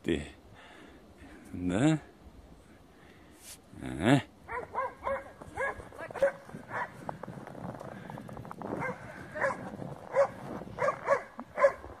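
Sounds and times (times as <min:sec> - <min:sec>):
dog yapping: 0:04.5 - 0:06.9, 0:08.8 - 0:11.8.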